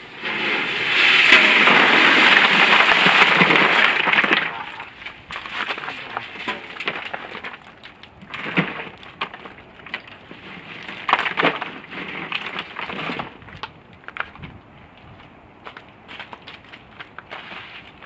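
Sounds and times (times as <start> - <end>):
ice cubes clattering: 1.2 - 4.9.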